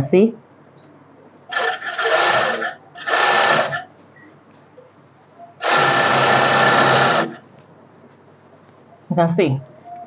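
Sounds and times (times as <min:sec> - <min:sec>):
sewing machine stitching: 0:01.5 - 0:03.9, 0:05.6 - 0:07.4.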